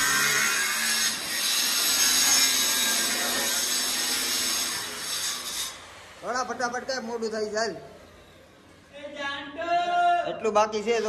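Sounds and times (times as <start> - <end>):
angle grinder cutting tile: 0.0 - 7.4.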